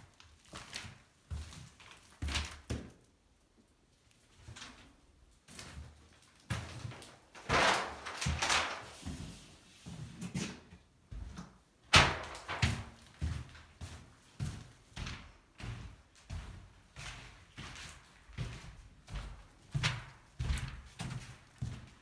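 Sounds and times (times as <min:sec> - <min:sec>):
footsteps thuds and scuffs: 0:12.0 - 0:22.0.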